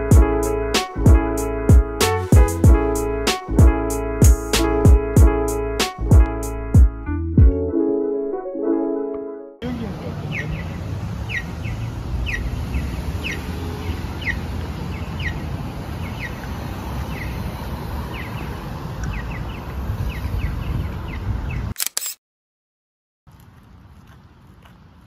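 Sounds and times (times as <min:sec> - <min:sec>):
traffic rumble: 0:09.6 - 0:21.7, 0:23.3 - 0:25.0.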